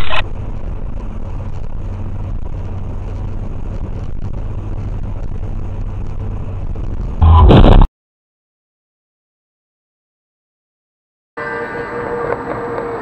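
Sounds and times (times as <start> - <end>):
road and engine noise inside car: 0.0 - 7.2, 11.4 - 13.0
constant low hum: 0.0 - 7.9.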